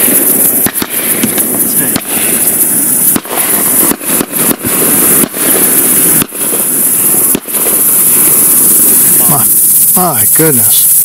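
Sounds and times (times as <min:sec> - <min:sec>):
distant shotgun shots: 0:00.0 - 0:02.4, 0:03.1 - 0:07.9.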